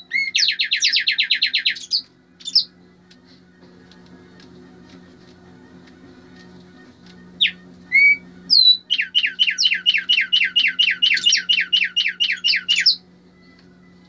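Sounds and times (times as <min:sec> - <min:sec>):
songbird singing whistled notes: 0:00.0 - 0:02.7, 0:07.4 - 0:13.6.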